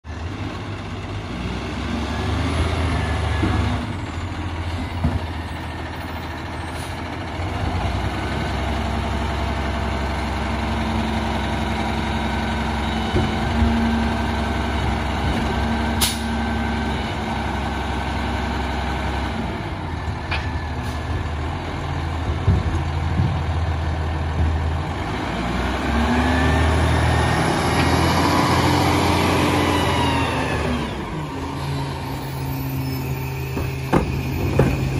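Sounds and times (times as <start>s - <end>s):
diesel truck engine rumbling: 0.1s - 34.9s.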